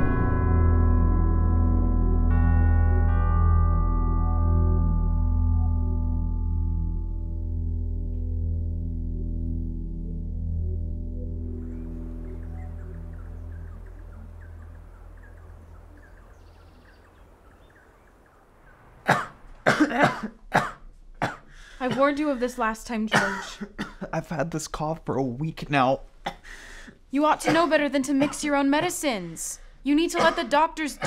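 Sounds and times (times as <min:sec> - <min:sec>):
low drone: 0:00.0 - 0:19.7
ringing bell-like tones: 0:01.1 - 0:07.2.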